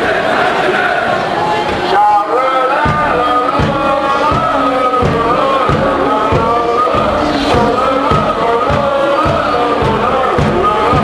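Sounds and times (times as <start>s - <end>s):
crowd chanting in unison: 0.0s - 11.0s
regular low beat: 2.8s - 11.0s.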